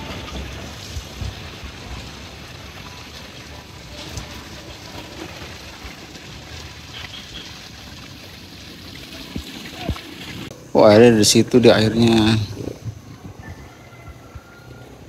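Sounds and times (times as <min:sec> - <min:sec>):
water trickling down a stream: 0:00.0 - 0:10.5.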